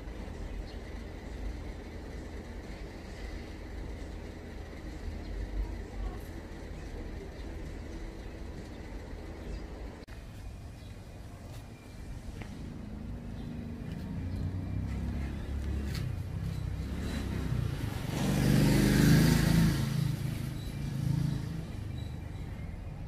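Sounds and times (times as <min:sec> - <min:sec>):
car driving past: 0:13.7 - 0:22.0.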